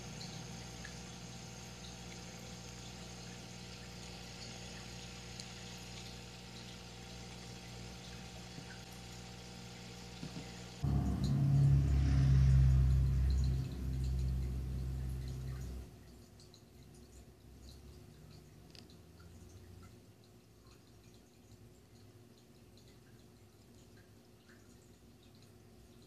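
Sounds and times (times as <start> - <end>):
aquarium pump humming: 0.0 - 26.0
water trickling: 0.0 - 26.0
loud low hum: 10.2 - 15.9.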